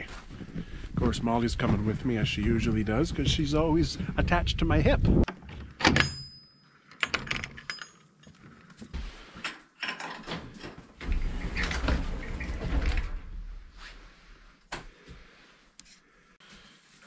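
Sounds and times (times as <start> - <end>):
wooden door squeaking open: 10.2 - 13.4.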